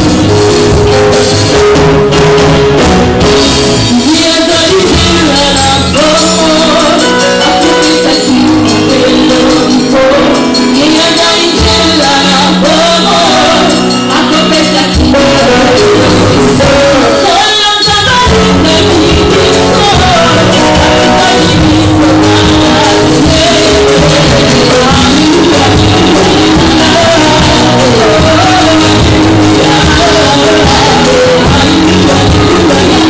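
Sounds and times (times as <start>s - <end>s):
drum kit: 0.0s - 33.0s
guitar: 0.0s - 33.0s
keyboard: 0.0s - 33.0s
woman singing lead: 3.7s - 33.0s
backing singers: 7.9s - 33.0s.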